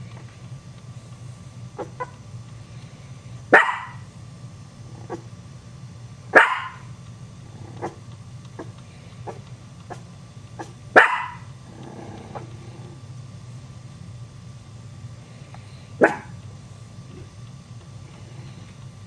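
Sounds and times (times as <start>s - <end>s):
small dog barking: 1.8s - 2.2s, 3.5s - 4.1s, 5.0s - 5.3s, 6.3s - 6.9s, 7.6s - 8.0s, 8.6s - 11.5s, 16.0s - 16.4s.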